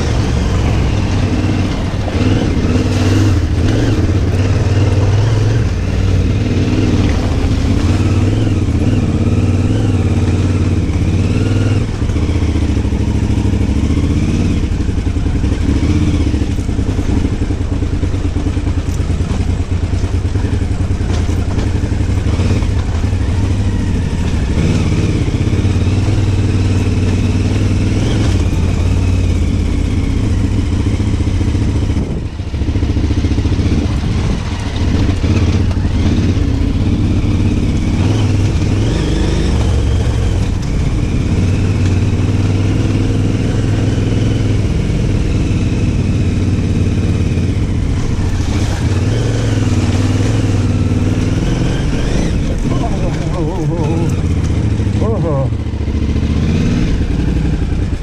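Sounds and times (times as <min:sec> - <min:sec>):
motorcycle engine running: 0:00.0 - 0:58.0
wind noise on microphone: 0:31.7 - 0:32.7.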